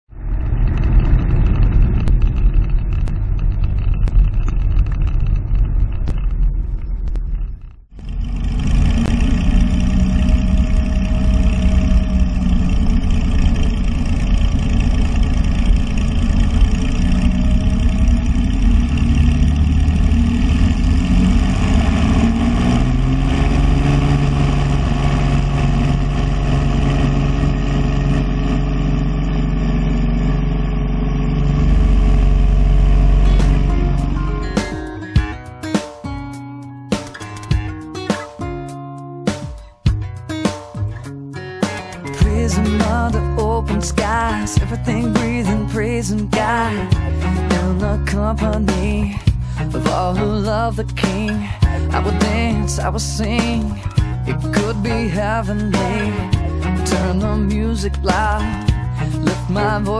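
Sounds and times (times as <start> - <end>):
propeller plane engine running: 0.1 - 36.0, 36.9 - 59.9.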